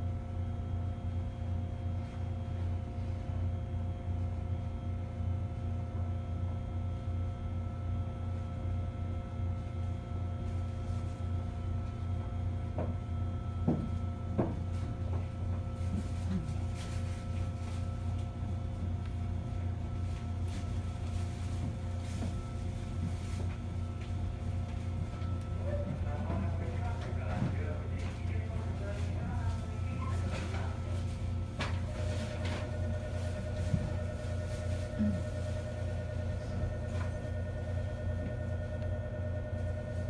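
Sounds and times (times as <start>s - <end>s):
electric train hum with tones: 0.0s - 40.0s.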